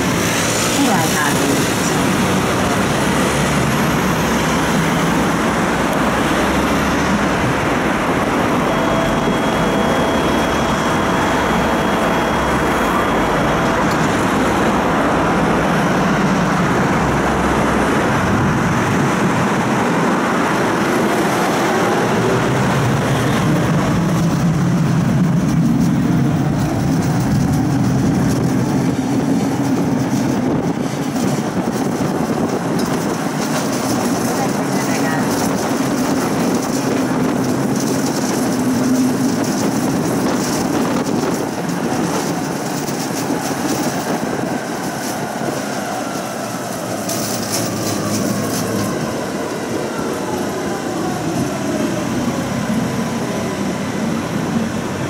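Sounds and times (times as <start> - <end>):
road traffic passing: 0.0 - 55.0
tram rumble and hum: 0.0 - 55.0.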